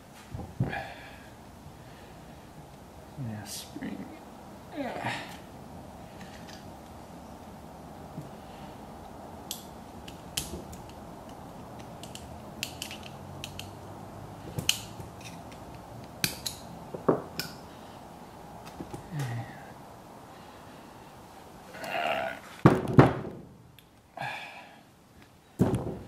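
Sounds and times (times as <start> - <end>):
small metal clicks and taps: 9.5 - 13.8.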